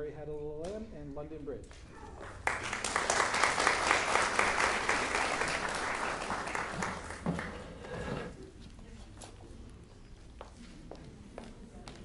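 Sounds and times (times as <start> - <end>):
audience applauding: 2.3 - 7.8.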